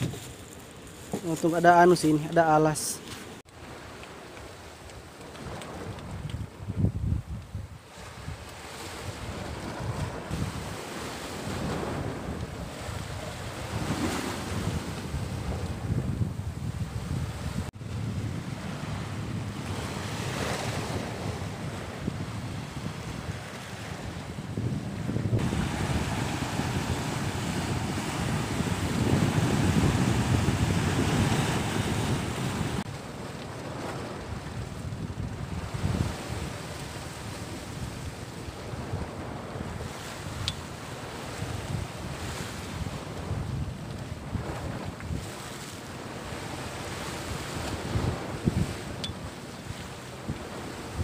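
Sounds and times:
wind buffeting microphone: 0.0s - 2.2s, 3.6s - 51.0s
waves breaking over rocks: 7.9s - 16.0s, 25.2s - 34.3s
surf breaking on rocks: 25.2s - 33.0s.

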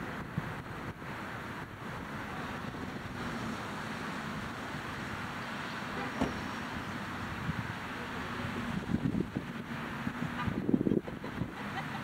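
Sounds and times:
wind on microphone: 0.0s - 3.6s, 8.4s - 11.6s
distant road traffic: 0.0s - 12.0s.

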